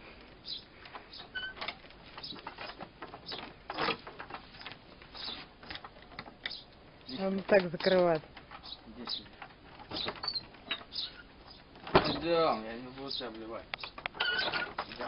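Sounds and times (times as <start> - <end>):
dog tugging rope on shed door: 1.2 - 6.5.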